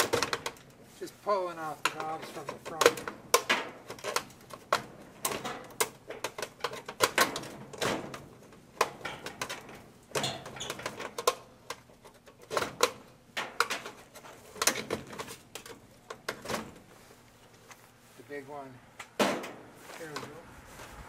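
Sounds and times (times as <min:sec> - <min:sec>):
plastic and metal clicks and knocks: 0:00.0 - 0:00.7, 0:01.8 - 0:16.7.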